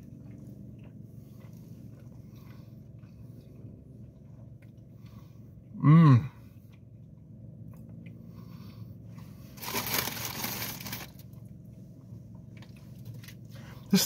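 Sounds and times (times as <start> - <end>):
low steady hum: 0.0 - 14.0
packaging rustling and crinkling: 9.6 - 11.2.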